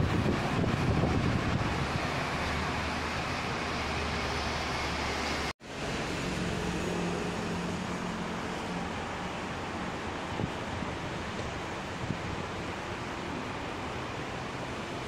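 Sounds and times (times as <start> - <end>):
distant trains: 0.0 - 15.0
road traffic rumble: 0.0 - 15.0.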